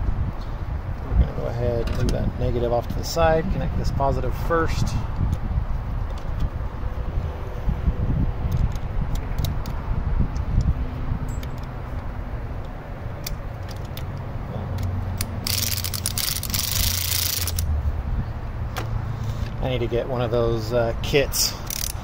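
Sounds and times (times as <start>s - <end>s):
steady low rumble: 0.0s - 20.3s
metallic clicks: 11.3s - 17.7s, 21.6s - 22.0s
socket ratchet ratcheting: 11.3s - 17.7s, 21.6s - 22.0s.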